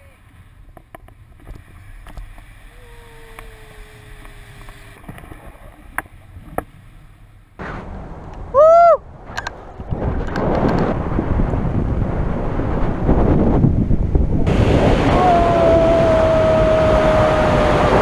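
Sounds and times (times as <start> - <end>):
wind rumbling on microphone: 0.0 - 18.0
person shouting: 2.8 - 4.2, 15.0 - 18.0.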